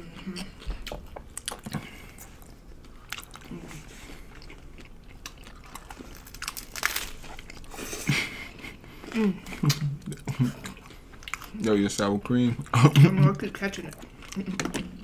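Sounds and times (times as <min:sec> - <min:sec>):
hard taco shell crunching: 0:04.4 - 0:07.7.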